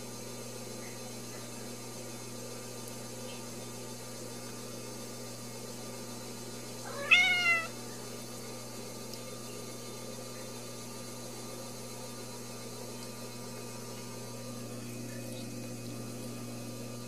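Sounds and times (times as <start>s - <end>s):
kitten mewing: 6.8s - 7.7s.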